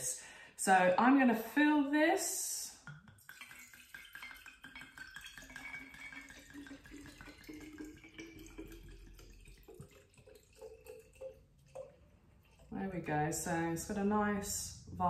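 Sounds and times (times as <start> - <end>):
wine pouring into glass bottle: 2.8 - 12.8.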